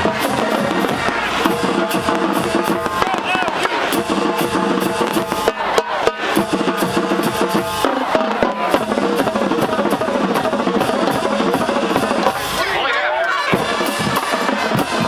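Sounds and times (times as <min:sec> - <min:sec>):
fireworks bursting: 0:00.0 - 0:06.5
marching band playing: 0:00.0 - 0:15.0.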